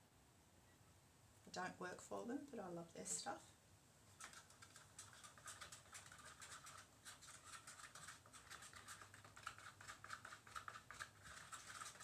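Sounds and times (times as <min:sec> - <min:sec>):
stirrer scraping a paper cup: 0:04.1 - 0:12.0.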